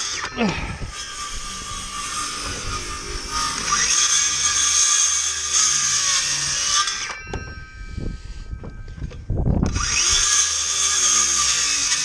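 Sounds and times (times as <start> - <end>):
circular saw cutting wood: 0.0 - 7.4, 9.7 - 12.0
saw blade ringing winding down: 0.0 - 12.0
low rumbling: 0.4 - 6.1.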